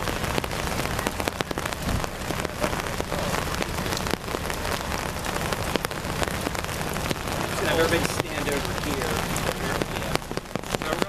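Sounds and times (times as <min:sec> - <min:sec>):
raindrops ticking close by: 0:00.0 - 0:11.0
steady rain: 0:00.0 - 0:11.0.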